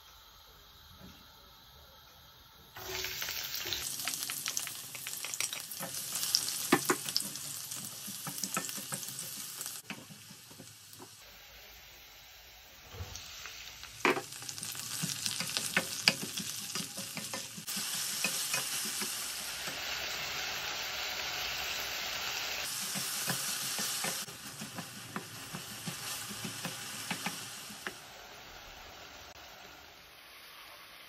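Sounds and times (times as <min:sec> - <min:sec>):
onions sizzling in hot oil: 0:02.3 - 0:31.0
wooden spatula knocking on pan: 0:06.7 - 0:11.1, 0:14.0 - 0:14.3, 0:15.0 - 0:19.2, 0:22.8 - 0:28.0.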